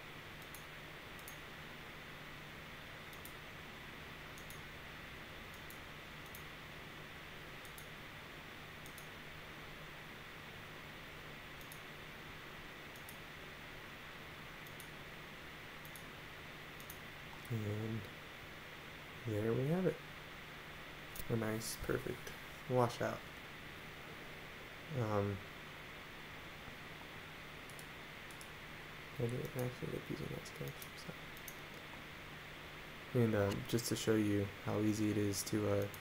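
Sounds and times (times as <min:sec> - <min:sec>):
low electrical hum: 0:00.0 - 0:36.0
recording hiss: 0:00.0 - 0:36.0
computer mouse clicks: 0:00.4 - 0:01.4, 0:03.1 - 0:03.4, 0:04.4 - 0:04.6, 0:05.5 - 0:06.5, 0:07.6 - 0:07.9, 0:08.8 - 0:09.1, 0:11.6 - 0:11.9, 0:12.9 - 0:13.2, 0:14.6 - 0:15.0, 0:15.8 - 0:16.1, 0:16.8 - 0:17.0, 0:27.7 - 0:28.6, 0:29.3 - 0:29.7, 0:30.5 - 0:31.8, 0:35.7 - 0:36.0.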